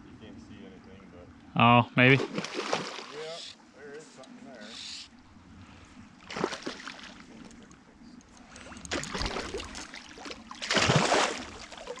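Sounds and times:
fish splashing in water: 2.2 - 3.2, 6.2 - 7.3, 8.9 - 12.0.

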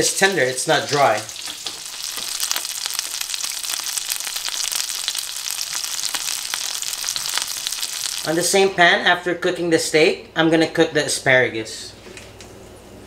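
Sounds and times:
steak sizzling in butter: 0.0 - 8.6.

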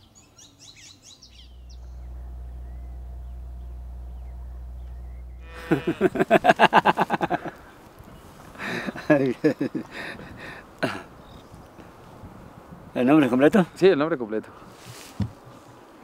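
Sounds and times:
birds chirping: 0.0 - 13.9
steady low hum: 1.4 - 6.6
man laughing heartily: 5.6 - 7.7, 8.6 - 11.1.

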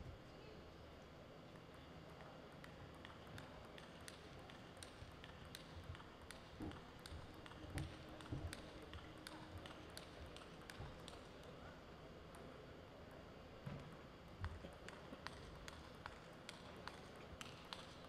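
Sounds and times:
table tennis ball bouncing: 2.5 - 11.4, 14.4 - 18.0.

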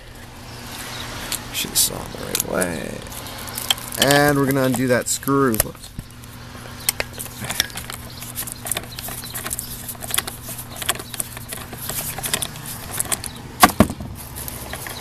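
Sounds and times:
screwdriver clicking and scraping: 6.8 - 13.4.

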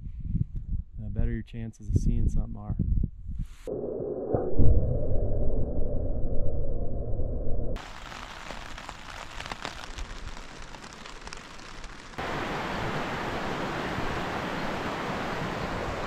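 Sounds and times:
rain pattering on tarp: 7.8 - 12.6
wind and rain rushing: 7.8 - 16.0.

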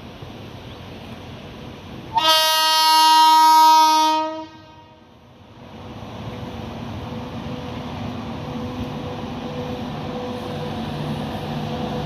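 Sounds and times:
train rumbling: 0.0 - 12.0
locomotive horn blast: 2.1 - 5.1.

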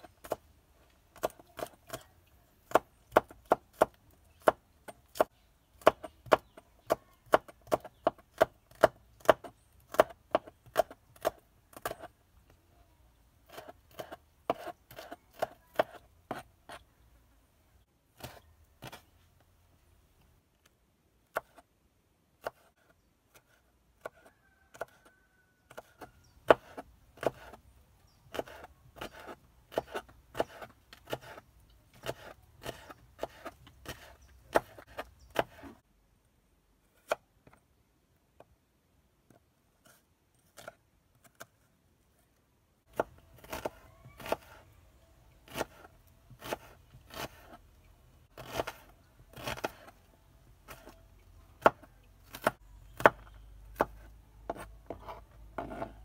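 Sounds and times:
knife chopping on wooden board: 1.2 - 12.1, 13.5 - 16.8, 18.2 - 19.0, 22.4 - 25.0, 25.7 - 27.6, 28.3 - 35.8, 42.9 - 44.6, 45.5 - 47.6, 48.4 - 49.9, 51.6 - 56.0.

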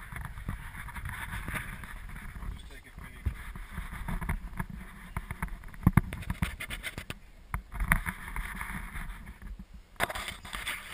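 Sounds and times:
knocks and rubbing near microphone: 0.0 - 10.9
rustling: 0.0 - 10.9.

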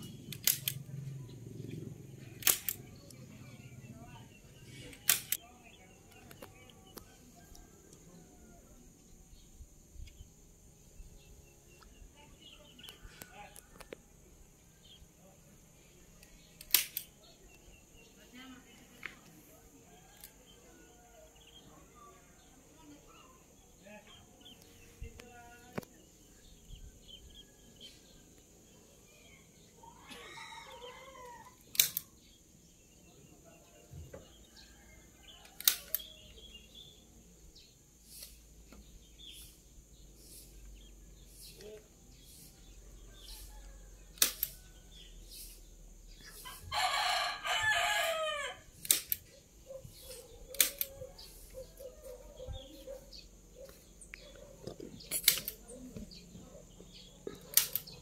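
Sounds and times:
rooster crowing: 29.8 - 31.6, 46.4 - 48.7.

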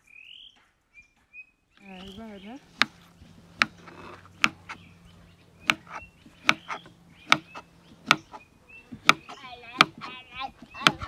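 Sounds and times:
faint bird chirps: 0.0 - 11.0
knife chopping on board: 2.7 - 4.8, 5.6 - 10.1.

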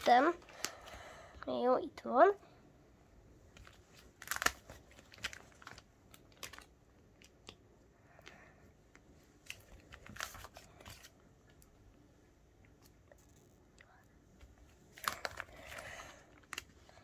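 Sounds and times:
plastic pages crinkling: 0.0 - 1.0, 3.5 - 7.6, 9.4 - 11.6, 14.9 - 17.0.

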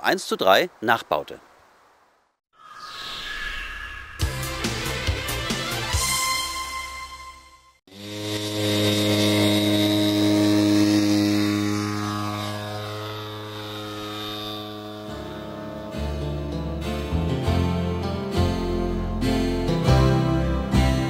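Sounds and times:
intro music: 4.2 - 13.8
model aircraft engine droning: 7.9 - 17.1.

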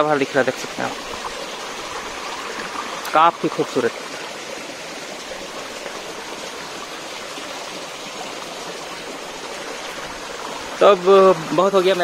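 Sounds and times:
waterfall and stream rushing: 0.0 - 12.0.

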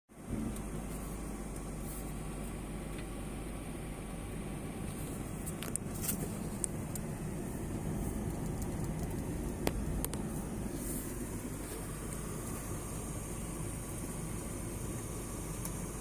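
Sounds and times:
car engine and road rumble: 0.1 - 16.0
sharp clicks: 7.7 - 10.3.

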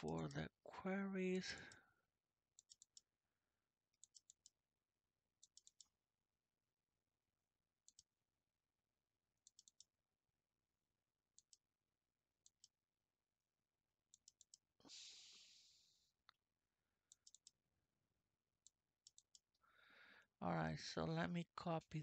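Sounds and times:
computer mouse clicks: 2.6 - 3.1, 4.0 - 4.6, 5.4 - 5.9, 7.8 - 8.1, 9.4 - 9.9, 11.4 - 11.6, 12.4 - 12.8, 14.1 - 14.7, 17.1 - 17.6, 18.6 - 19.6.

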